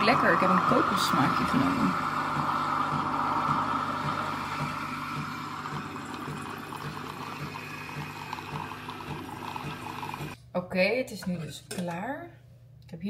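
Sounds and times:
coffee machine pulsing: 0.0 - 10.4.

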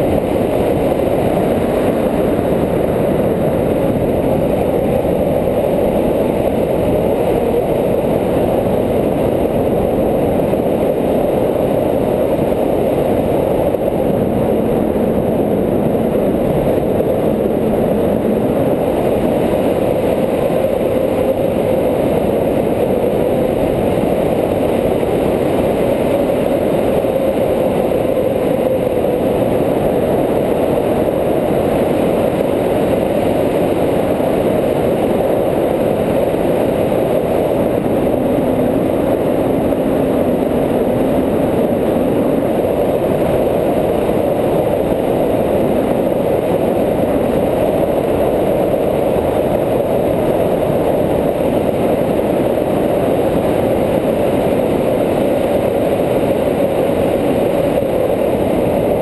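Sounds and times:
wind rushing over microphone: 0.0 - 59.0.

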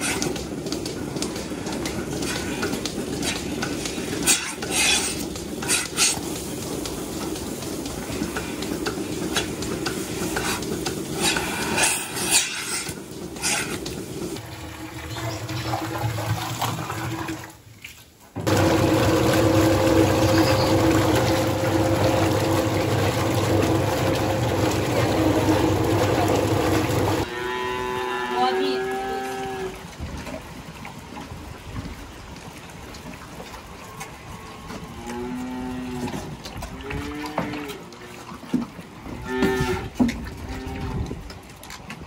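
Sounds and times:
electric motor hum: 18.5 - 27.2.

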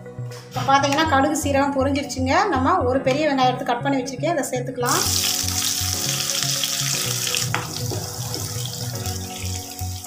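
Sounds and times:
onions sizzling in hot oil: 4.9 - 10.0
background music with a beat: 5.3 - 10.0.

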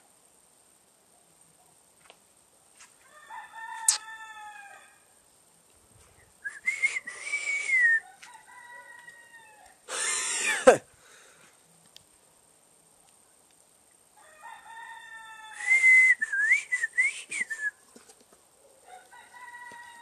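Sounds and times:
rooster crowing: 3.0 - 5.2, 7.7 - 9.8, 14.2 - 15.9, 18.8 - 20.0.

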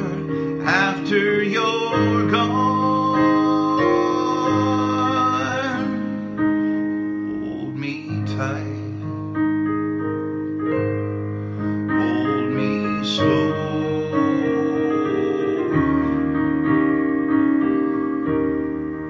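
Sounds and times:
man singing: 0.0 - 6.4, 7.3 - 9.2, 11.9 - 16.0
piano chords: 0.0 - 19.0.

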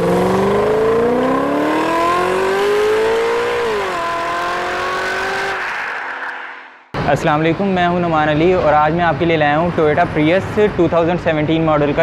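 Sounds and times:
car engine revving: 0.0 - 6.9.

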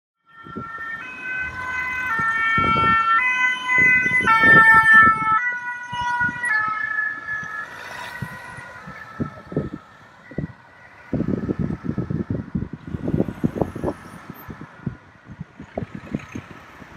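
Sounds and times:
two-tone fire siren: 0.2 - 15.5.

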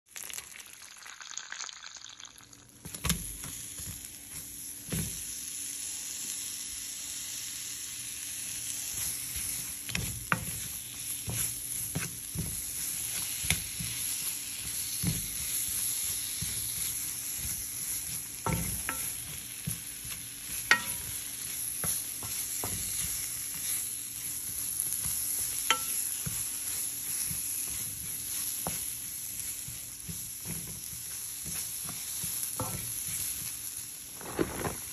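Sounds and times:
leaves sizzling in oil: 0.1 - 34.9
onions sizzling in hot oil: 0.1 - 34.9
spatula scraping against pan: 8.9 - 33.6.

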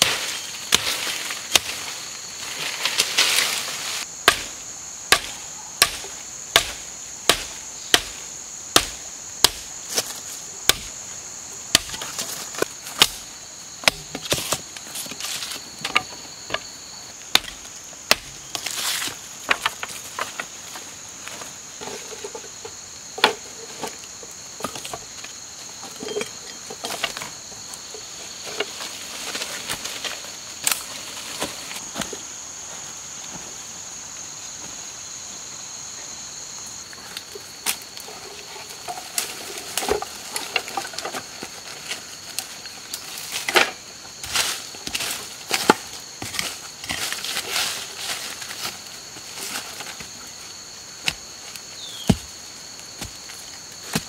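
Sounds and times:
rustling of sticks and dry leaves: 0.0 - 33.4, 36.8 - 54.0
insects trilling: 0.0 - 54.0.

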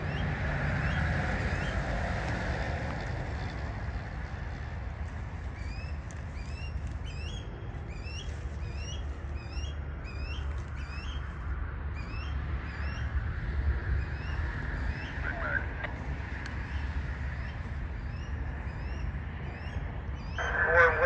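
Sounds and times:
steady low rumble: 0.0 - 21.0
bird chirping: 5.5 - 13.1, 16.6 - 20.9.

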